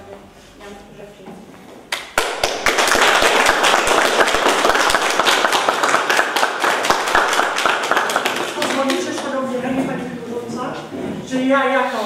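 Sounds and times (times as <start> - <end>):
small group applauding: 1.9 - 9.4.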